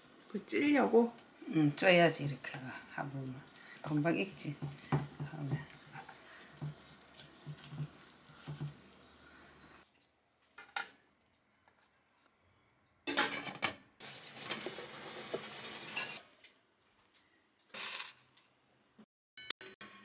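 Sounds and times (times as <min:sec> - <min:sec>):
pots clattering: 0:04.0 - 0:08.8, 0:13.1 - 0:16.4
dishes clinking: 0:13.1 - 0:13.8.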